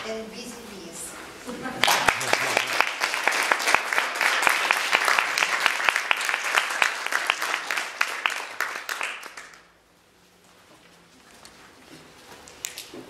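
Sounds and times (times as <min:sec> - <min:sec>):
audience applause: 0:01.8 - 0:09.7.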